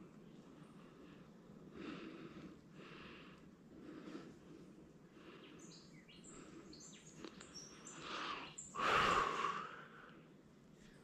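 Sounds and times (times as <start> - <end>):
bird chirping: 5.4 - 8.8.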